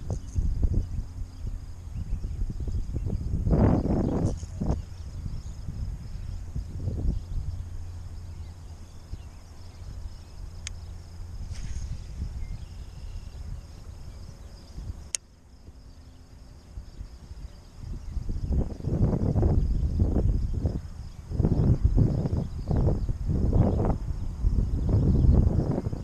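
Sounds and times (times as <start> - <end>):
high hum of insects: 0.0 - 26.0
wind rumbling on microphone: 0.0 - 26.0
sharp ticks: 10.6 - 10.9, 15.0 - 15.3.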